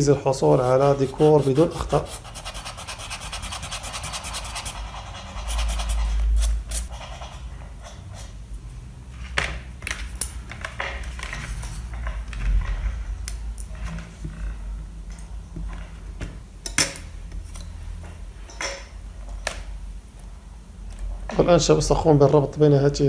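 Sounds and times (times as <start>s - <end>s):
eraser rubbing on paper: 0.4s - 7.5s.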